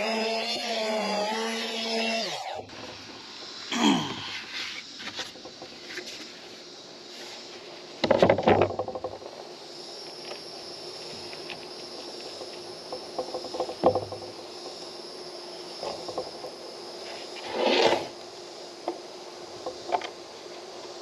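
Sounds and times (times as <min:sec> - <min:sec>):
board set down on wooden table: 0:08.0 - 0:09.3, 0:13.2 - 0:14.4.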